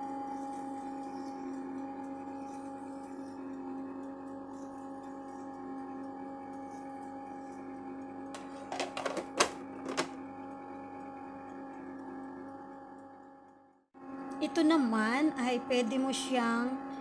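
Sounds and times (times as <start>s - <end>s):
ice cream maker humming: 0.0s - 17.0s
plastic lid clicks and knocks: 8.4s - 10.2s.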